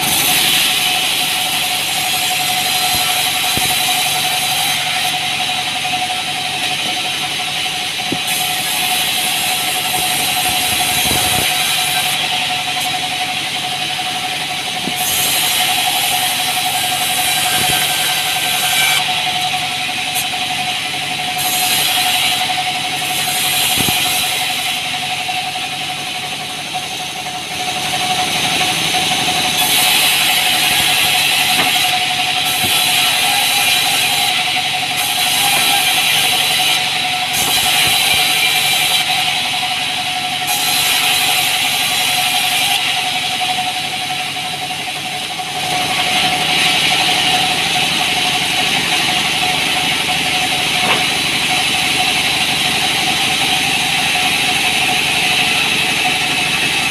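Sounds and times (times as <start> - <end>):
band saw whining: 0.0 - 56.9
saw blade hissing through wood: 29.6 - 39.4.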